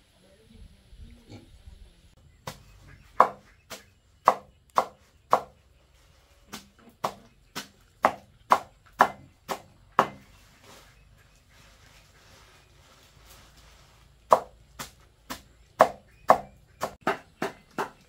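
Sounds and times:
knife chopping on cutting board: 3.2s - 5.5s, 6.6s - 10.2s.

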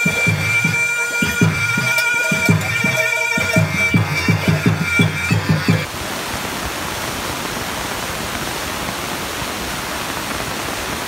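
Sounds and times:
dance music with drum beats: 0.0s - 5.9s
steady rushing hiss: 0.0s - 11.0s.

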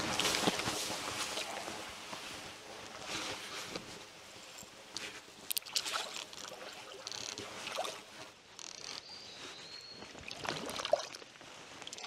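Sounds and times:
creek water splashing: 5.4s - 8.2s, 10.0s - 12.0s.

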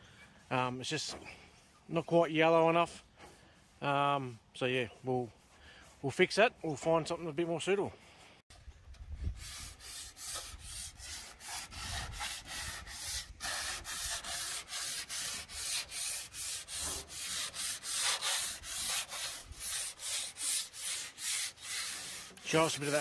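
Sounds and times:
sandpaper rubbing painted metal: 9.2s - 23.0s.

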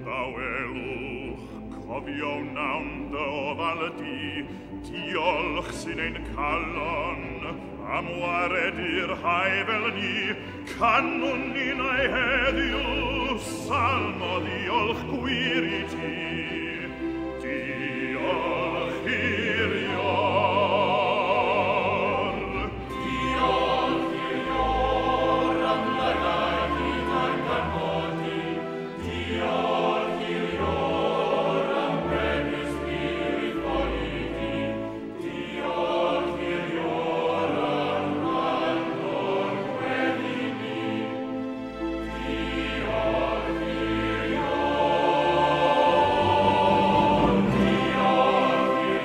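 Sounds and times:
choir singing: 0.0s - 49.0s
operatic hymn singing: 0.0s - 49.0s.

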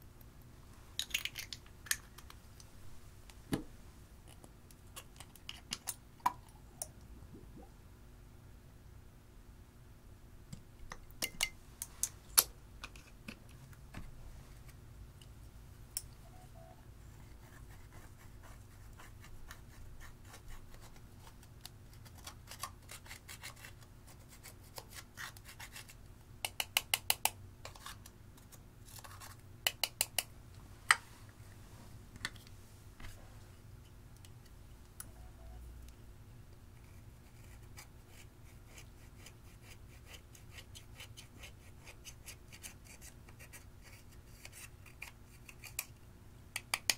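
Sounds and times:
sharp clicks and taps: 26.4s - 27.4s.

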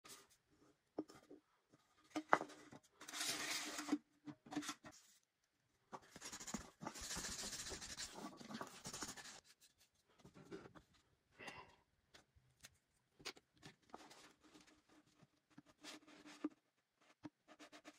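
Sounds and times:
sandpaper rubbing can: 6.3s - 8.2s.

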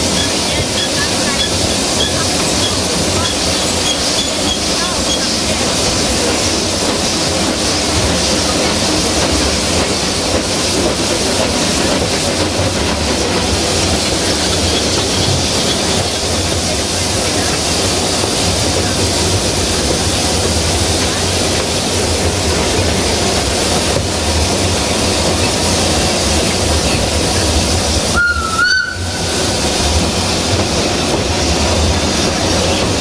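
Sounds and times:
steam train rumbling with hiss: 0.0s - 33.0s
steam whistle blast: 28.1s - 29.5s.

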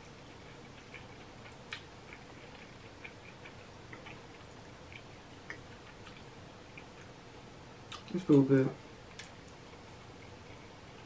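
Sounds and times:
mouth chewing clicks and smacks: 0.3s - 7.1s, 7.9s - 8.4s.

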